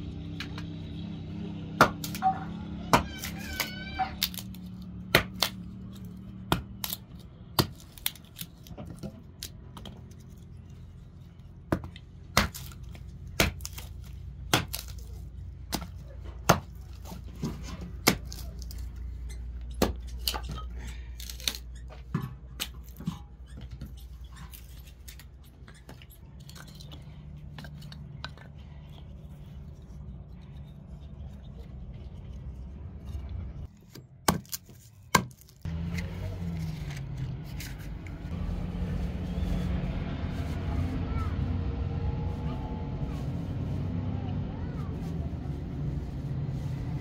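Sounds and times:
hatchet chopping wood: 1.8 - 2.3, 2.9 - 5.6, 6.3 - 8.2, 11.7 - 16.8, 17.4 - 18.7, 19.7 - 20.6, 33.9 - 36.0.

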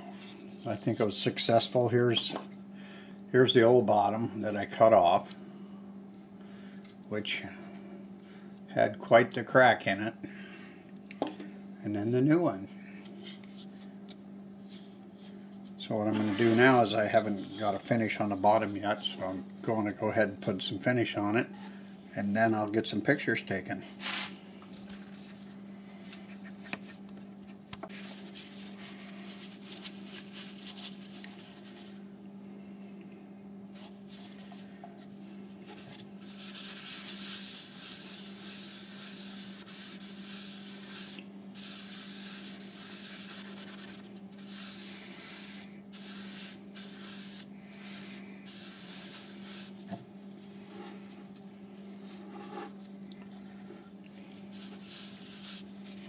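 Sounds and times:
steady low hum: 0.0 - 56.0
cloth wiping wood: 16.0 - 19.4, 36.2 - 51.1, 54.4 - 56.0.

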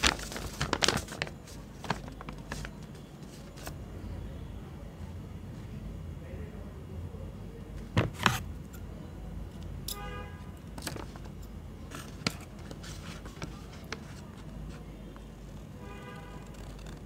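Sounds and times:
paper rustling: 0.0 - 3.8, 7.8 - 8.5, 10.8 - 14.9, 16.4 - 17.0
scissors snipping paper: 16.4 - 17.0.

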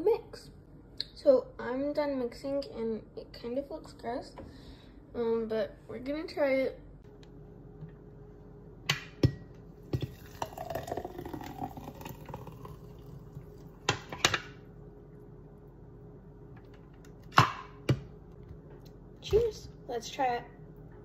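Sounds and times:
thick milkshake pouring: 10.0 - 13.8.

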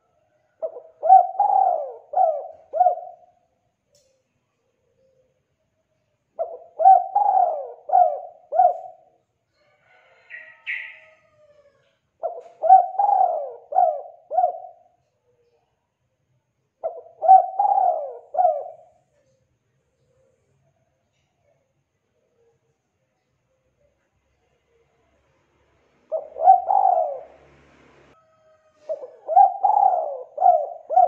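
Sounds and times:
dove cooing: 0.6 - 3.3, 6.4 - 9.1, 10.2 - 14.9, 16.8 - 19.0, 26.1 - 27.5, 28.8 - 31.0.

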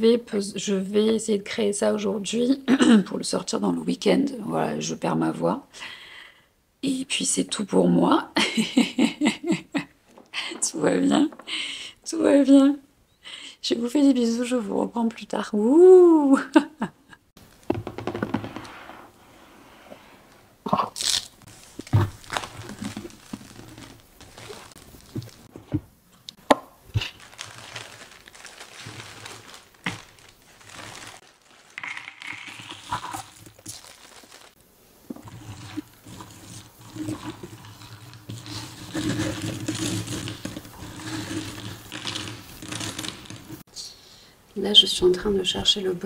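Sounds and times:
plastic bag crinkling: 20.9 - 25.6, 26.2 - 43.6
puzzle pieces rattling and scraping: 30.8 - 33.4, 35.3 - 43.6.

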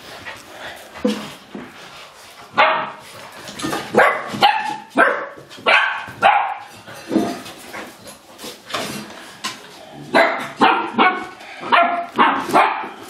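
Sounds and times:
puppies barking: 3.9 - 6.8, 10.1 - 13.0.

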